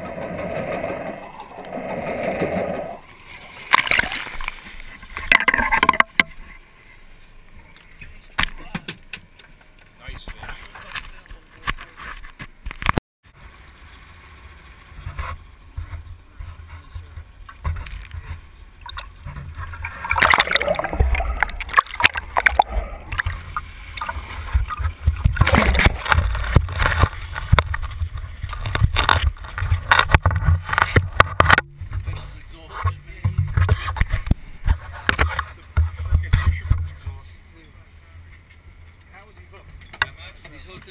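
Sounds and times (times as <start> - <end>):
water sloshing and splashing: 0.0 - 6.6, 13.6 - 37.2.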